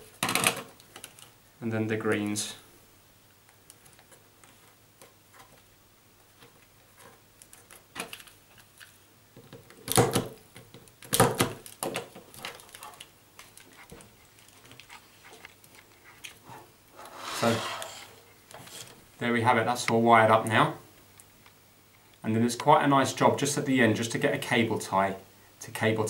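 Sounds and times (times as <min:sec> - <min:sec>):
plastic handling sounds: 0:06.4 - 0:19.0.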